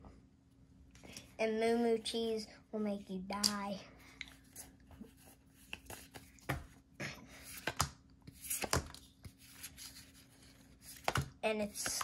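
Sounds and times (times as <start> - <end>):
faint steady hum: 0.0 - 12.0
cards sliding and rubbing: 4.4 - 6.8, 7.4 - 12.0.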